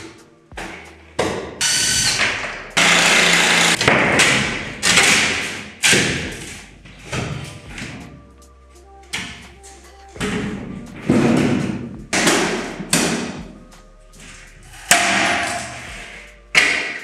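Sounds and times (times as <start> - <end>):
wall panels thudding and clattering: 3.8 - 8.1, 10.2 - 13.5.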